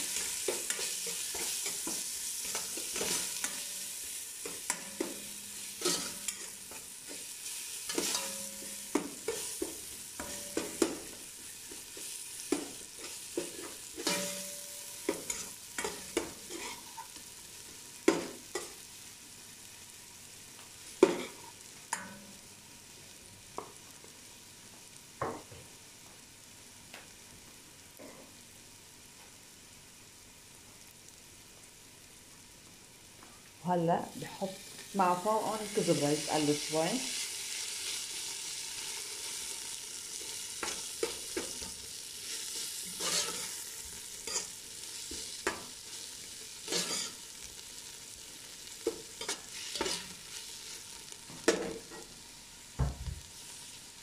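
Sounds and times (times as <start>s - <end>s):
garlic sizzling in oil: 0.0s - 54.0s
metal spoon scraping a pot: 43.0s - 43.6s, 46.7s - 47.2s.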